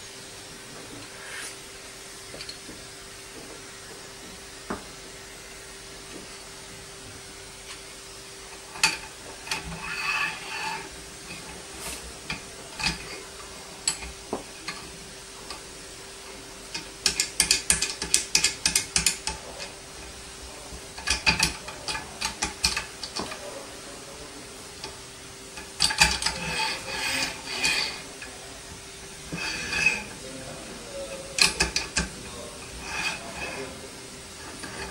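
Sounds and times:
faint steady hum: 0.0s - 34.9s
rapid metallic clicking of clamps: 16.7s - 19.4s, 21.0s - 23.4s, 25.6s - 28.0s.

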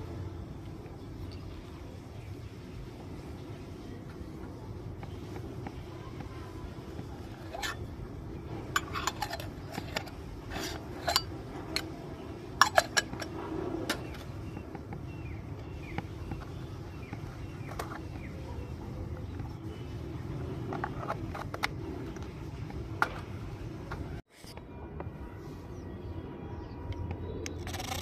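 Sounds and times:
toy kitchenware clinking: 7.2s - 14.4s, 20.6s - 22.4s, 27.4s - 28.0s.

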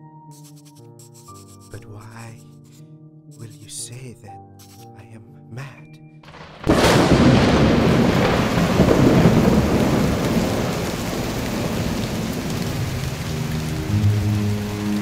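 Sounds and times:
thunder clap rumbling: 6.3s - 14.1s
heavy rain: 6.3s - 15.0s.

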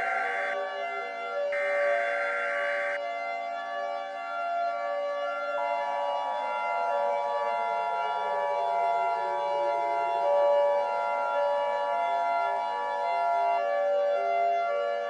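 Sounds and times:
steady held tones: 0.0s - 0.7s, 1.5s - 3.0s
siren wailing: 0.0s - 15.0s.

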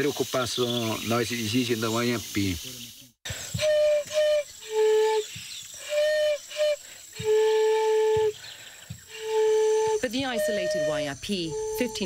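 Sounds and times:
wooden flute phrase: 3.5s - 8.4s, 9.1s - 12.0s.

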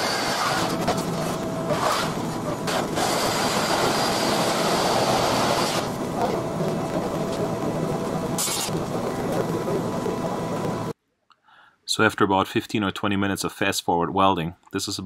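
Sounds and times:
welding crackling hiss: 0.0s - 10.9s.

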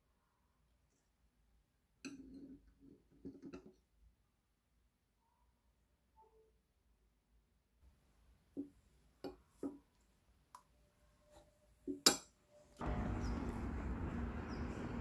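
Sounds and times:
outdoor street noise: 12.8s - 15.0s.

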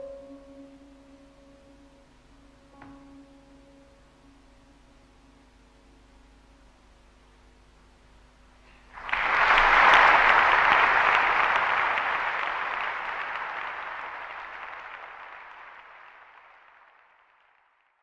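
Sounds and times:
audience applauding: 8.9s - 17.7s.

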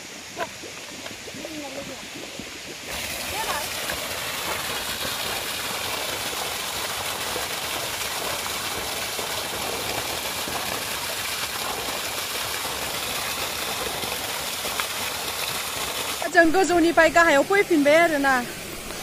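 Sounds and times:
water gushing into basin: 0.0s - 19.0s.

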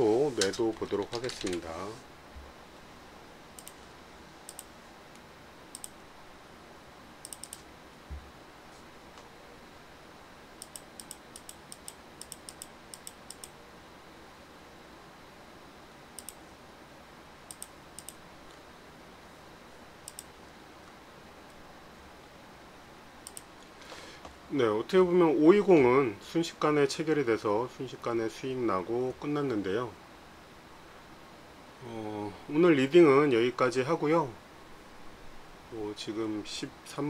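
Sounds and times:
faint steady hiss: 0.0s - 37.0s
computer mouse clicks: 3.6s - 3.8s, 4.4s - 6.0s, 7.2s - 7.7s, 10.6s - 13.6s, 16.2s - 16.4s, 17.5s - 18.6s, 20.0s - 20.3s, 23.2s - 23.5s.

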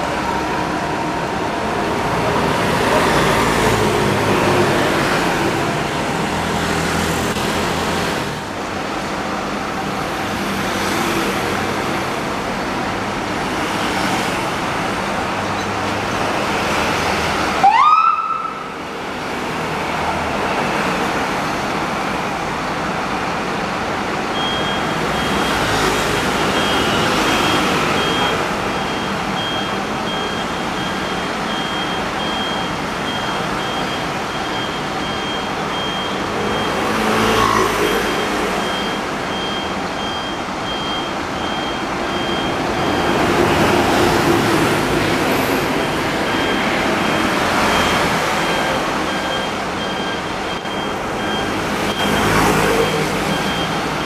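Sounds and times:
fire engine running: 0.0s - 36.7s, 38.1s - 54.0s
traffic noise: 0.0s - 54.0s
high electronic beeping: 24.3s - 44.2s, 44.8s - 54.0s.

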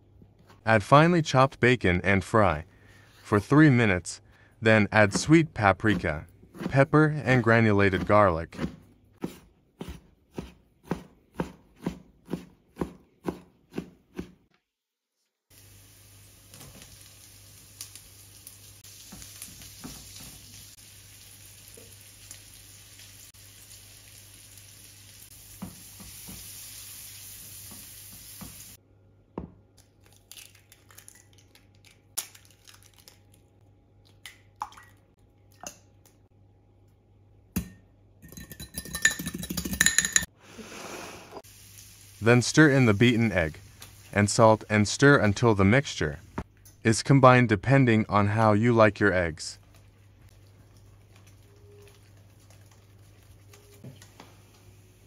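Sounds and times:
knife chopping on cutting board: 7.9s - 14.4s
food sizzling in a frying pan: 15.5s - 28.8s, 41.4s - 44.2s.

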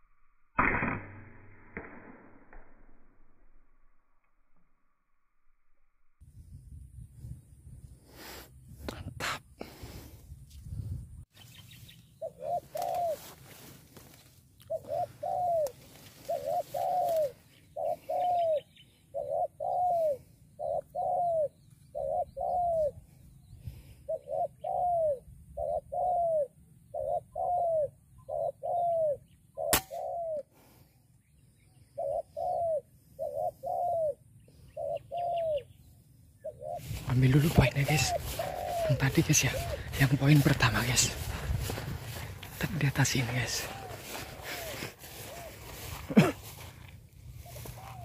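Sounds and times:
dove cooing: 12.2s - 13.6s, 14.6s - 23.1s, 23.8s - 30.5s, 31.8s - 35.8s, 36.4s - 48.0s
air rifle shot click: 29.7s - 30.1s.

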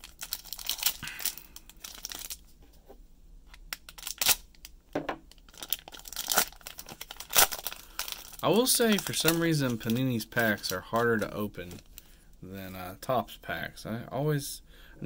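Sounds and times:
plastic wrapper crinkling and tearing: 0.0s - 2.6s, 3.5s - 12.1s.

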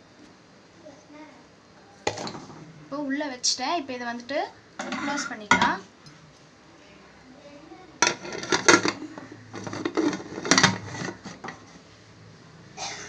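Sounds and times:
metal lid clanking and scraping: 4.8s - 5.8s, 8.0s - 11.8s.

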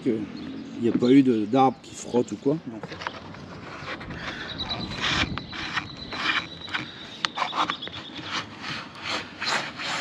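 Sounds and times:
hand scraper rasping off paint: 3.5s - 10.0s.

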